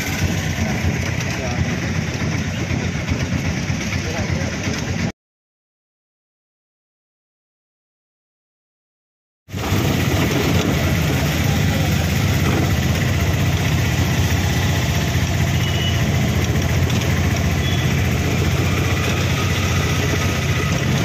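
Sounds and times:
auto-rickshaw engine running: 0.0s - 5.1s, 9.5s - 21.0s
road noise: 0.0s - 5.1s, 9.5s - 21.0s.

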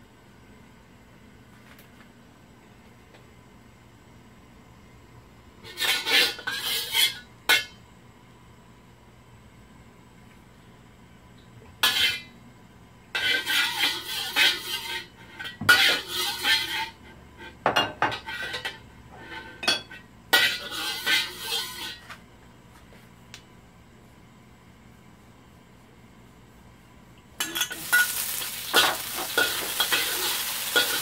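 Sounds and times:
metal spatula scraping wok: 5.6s - 7.3s, 13.2s - 17.0s, 20.4s - 22.1s, 27.4s - 31.0s.

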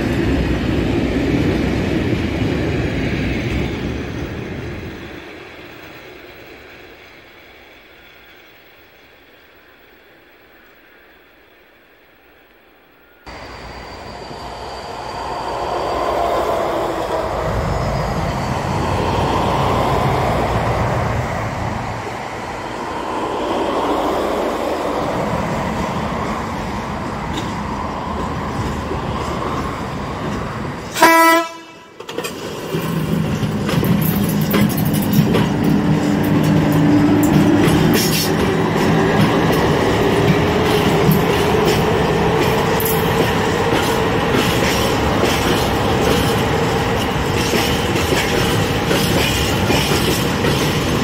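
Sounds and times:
freight train rumbling: 0.0s - 51.0s
locomotive horn blast: 30.9s - 32.0s.

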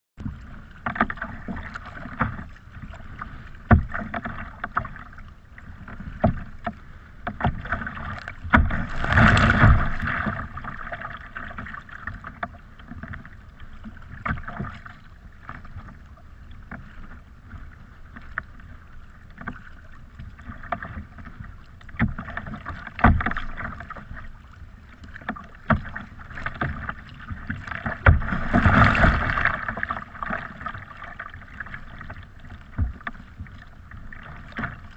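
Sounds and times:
water splashing against kayak hull: 0.2s - 34.9s
rush of water and spray: 7.6s - 12.4s, 25.1s - 34.9s.

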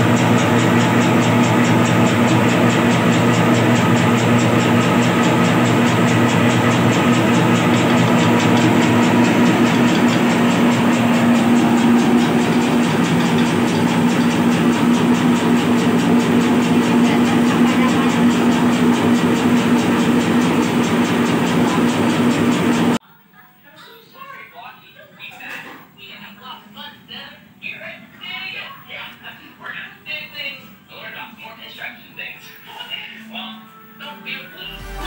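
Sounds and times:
electric motor hum: 0.0s - 23.0s, 34.7s - 35.0s
fast mechanical rattle: 0.0s - 23.0s.

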